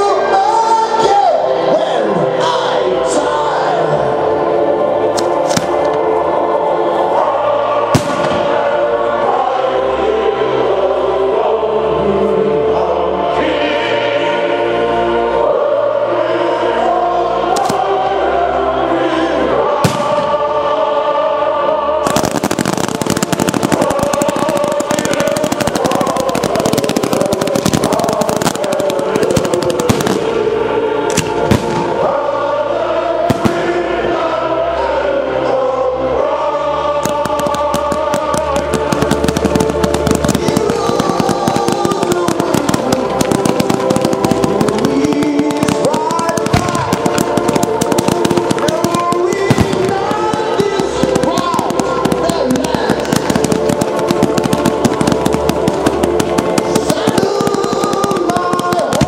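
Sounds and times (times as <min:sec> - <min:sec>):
choral music: 0:00.0 - 0:59.0
fireworks crackling: 0:05.0 - 0:09.7, 0:17.5 - 0:18.0, 0:19.7 - 0:20.7, 0:22.0 - 0:32.3, 0:33.2 - 0:34.1, 0:36.8 - 0:59.0
fireworks bangs: 0:05.2 - 0:06.1, 0:07.8 - 0:08.9, 0:19.8 - 0:20.5, 0:22.0 - 0:32.1, 0:33.3 - 0:33.9, 0:37.0 - 0:59.0
firework bang: 0:07.9 - 0:08.6.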